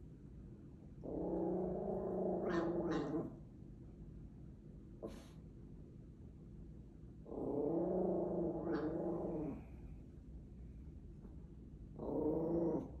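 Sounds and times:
small dog growling: 1.0s - 3.4s, 7.2s - 9.8s, 12.0s - 13.0s.

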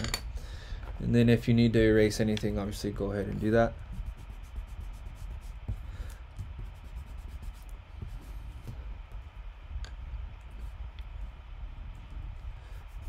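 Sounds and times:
eraser rubbing on paper: 3.8s - 8.6s, 12.7s - 13.0s.

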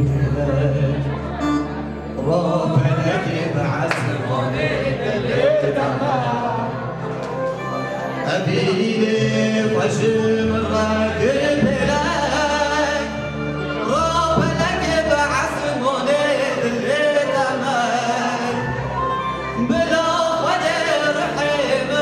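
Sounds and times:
man singing into a microphone: 0.0s - 7.1s, 8.0s - 22.0s
keyboard chords and bass: 0.0s - 22.0s.

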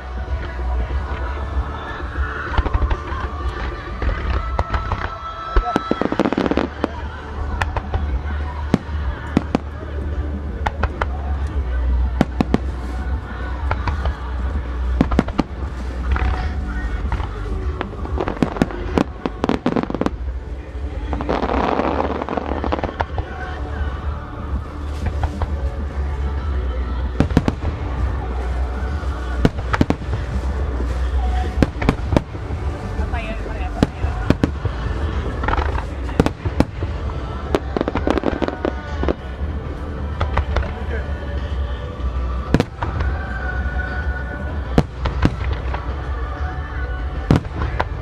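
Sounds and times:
firework stars crackling: 0.0s - 48.0s
steady low rumble: 0.0s - 48.0s
firework bangs: 10.5s - 41.6s.

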